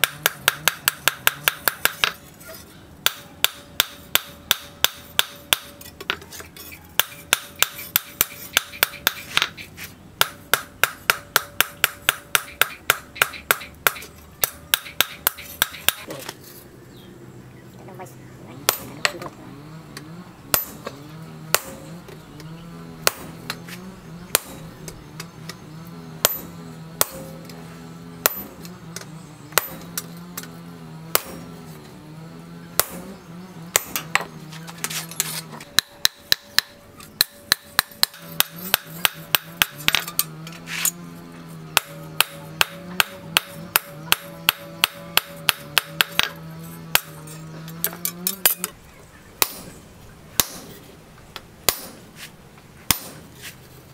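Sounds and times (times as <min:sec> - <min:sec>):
hammer striking steel on anvil: 0:00.0 - 0:02.2, 0:03.0 - 0:09.6, 0:10.2 - 0:16.1, 0:18.7 - 0:19.3, 0:20.5 - 0:21.9, 0:23.0 - 0:23.6, 0:24.3 - 0:25.3, 0:26.2 - 0:27.6, 0:28.2 - 0:30.5, 0:31.1 - 0:31.5, 0:32.8 - 0:33.1, 0:33.7 - 0:41.0, 0:41.7 - 0:48.8, 0:49.4 - 0:49.8, 0:50.4 - 0:50.8, 0:51.7 - 0:52.0, 0:52.9 - 0:53.3.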